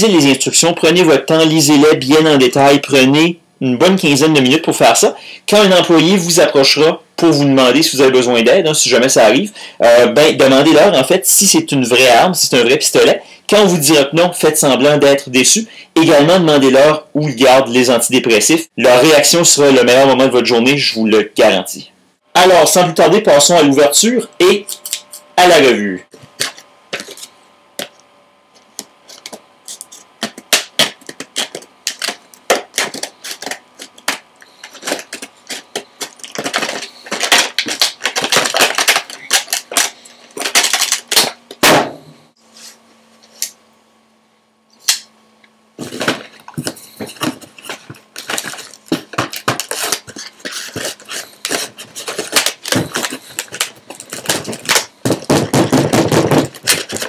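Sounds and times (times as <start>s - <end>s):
plastic packaging crackling: 28.6s - 41.6s, 45.8s - 57.0s.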